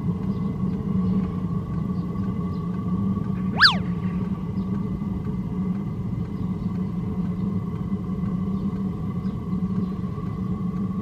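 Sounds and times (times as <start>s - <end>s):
faint high whine: 3.6s - 3.9s.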